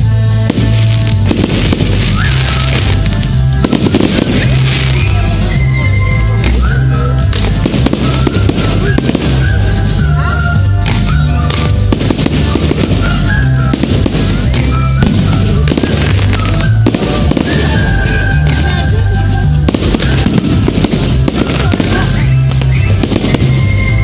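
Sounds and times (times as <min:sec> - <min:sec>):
fireworks bursting and crackling: 0:00.0 - 0:24.0
loud music with bass: 0:00.0 - 0:24.0.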